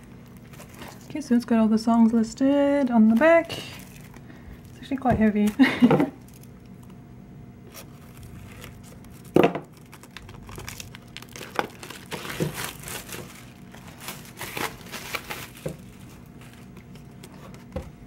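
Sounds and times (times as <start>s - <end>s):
plastic shrink-wrap crinkling and tearing: 0.0s - 1.5s, 2.8s - 7.0s, 7.6s - 17.7s.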